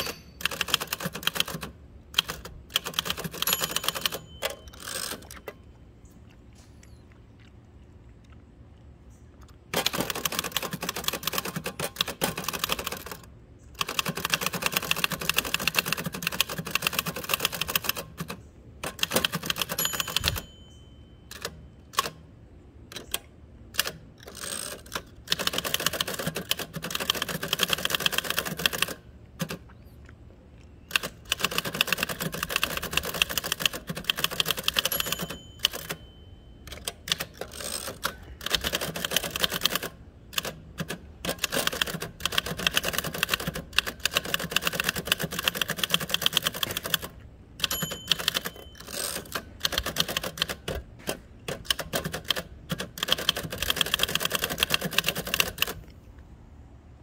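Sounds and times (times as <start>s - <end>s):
typewriter bell: 0.0s - 1.6s, 2.4s - 5.6s, 19.0s - 22.1s, 31.4s - 39.8s, 41.5s - 50.6s
typewriter carriage return: 0.0s - 5.6s, 9.7s - 22.3s, 23.8s - 29.6s, 30.9s - 55.8s
typewriter keystrokes: 0.0s - 5.6s, 9.7s - 20.6s, 23.8s - 29.6s, 30.9s - 36.1s, 36.7s - 55.8s.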